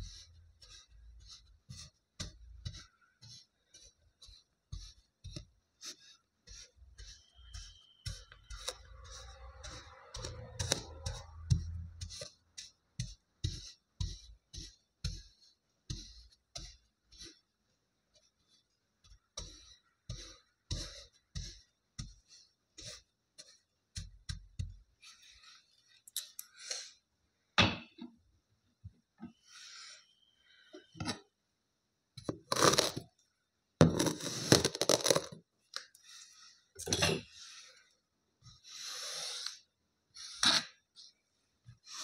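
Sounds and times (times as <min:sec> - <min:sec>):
plastic tool tapping kinetic sand: 0:00.0 - 0:17.4, 0:19.0 - 0:25.0.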